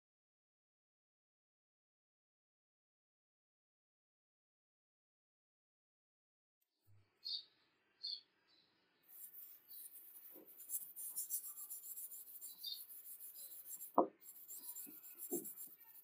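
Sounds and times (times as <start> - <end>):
sandpaper rubbing on wood: 9.1 - 16.0
knocks on wood: 13.9 - 14.2, 14.9 - 15.6.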